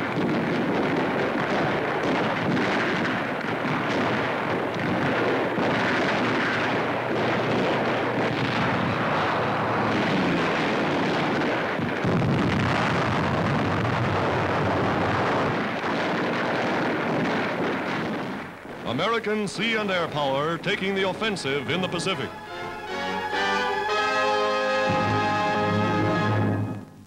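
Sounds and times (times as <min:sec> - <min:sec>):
anti-aircraft gunfire: 0:00.0 - 0:22.8
explosions: 0:00.0 - 0:27.0
heavy low rumble: 0:03.8 - 0:15.6, 0:18.6 - 0:27.0
aircraft engines: 0:04.4 - 0:11.8.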